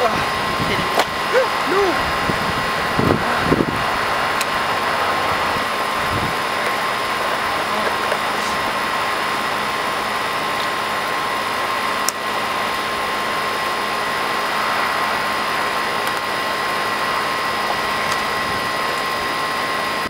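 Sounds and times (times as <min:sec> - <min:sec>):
highway traffic roar: 0:00.0 - 0:20.0.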